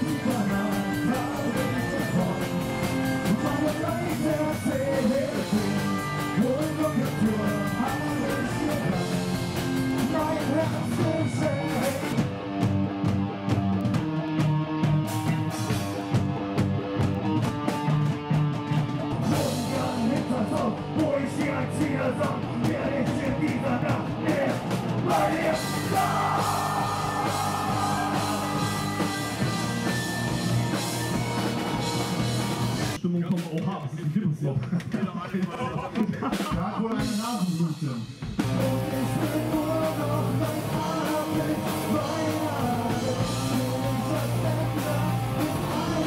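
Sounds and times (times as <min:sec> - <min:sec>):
person singing: 0:00.0 - 0:12.2, 0:19.2 - 0:30.3, 0:38.5 - 0:46.0
rock band playing: 0:00.0 - 0:33.0, 0:36.3 - 0:46.0.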